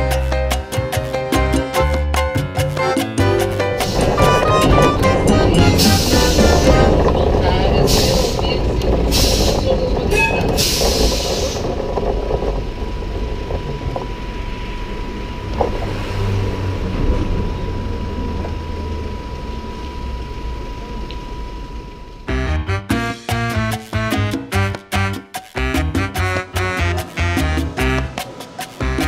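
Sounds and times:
tram rumble: 2.8 - 22.6, 25.6 - 29.0
high-pitched hum: 3.2 - 22.9
air hissing: 3.7 - 7.2, 7.8 - 11.8.

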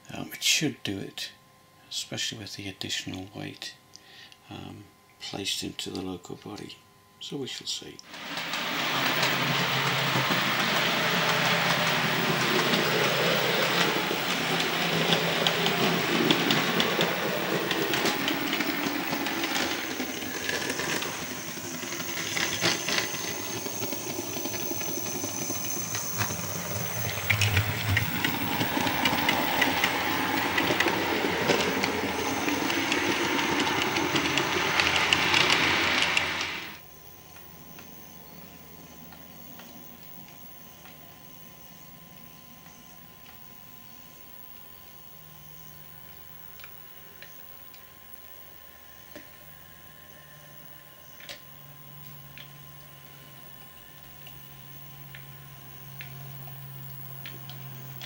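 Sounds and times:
model locomotive running hiss: 0.0 - 58.0.

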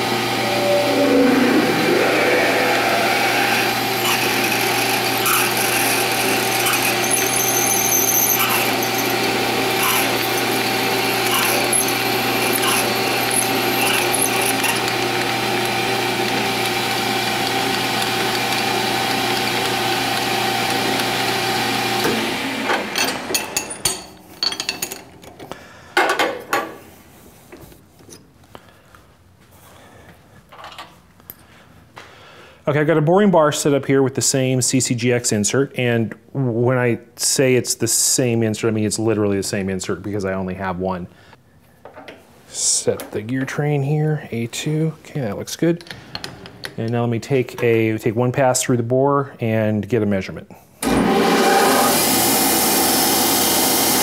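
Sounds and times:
metal lathe motor hum: 0.0 - 23.4
drill cutting metal: 0.0 - 23.5, 50.8 - 54.0
tools clinking and rattling: 23.3 - 25.4.

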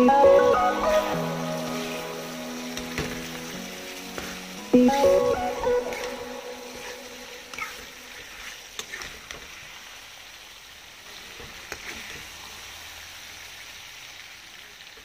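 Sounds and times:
curry sizzling and bubbling: 0.0 - 15.0
metal ladle scraping pan: 0.8 - 9.6.

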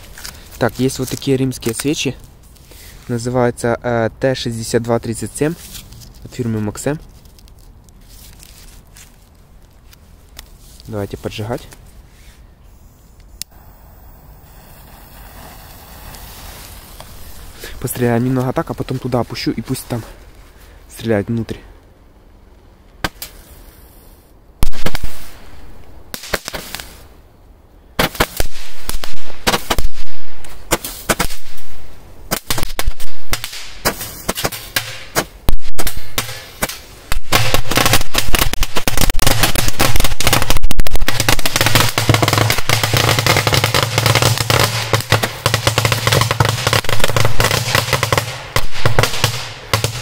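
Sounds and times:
roman candle shots: 12.7 - 20.2
firecrackers crackling chain of bangs: 13.5 - 18.5, 32.3 - 50.0.

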